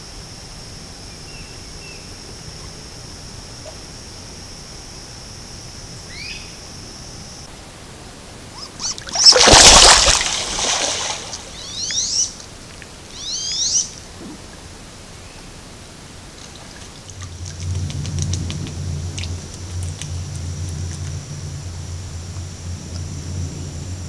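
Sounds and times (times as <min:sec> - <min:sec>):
steady high buzz: 0:00.0 - 0:24.0
duck squealing calls: 0:08.5 - 0:09.8
ducks splashing on water: 0:08.6 - 0:12.0, 0:16.4 - 0:21.6.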